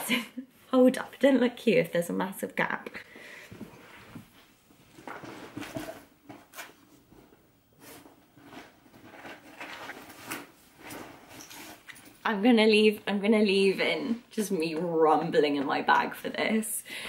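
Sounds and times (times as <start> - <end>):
rummaging through a bag: 8.0 - 12.2.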